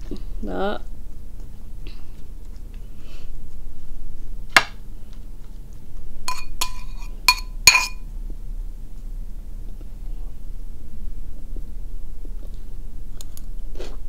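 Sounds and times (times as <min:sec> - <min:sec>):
metal spoon clinking ceramic bowl: 0:06.3 - 0:08.0.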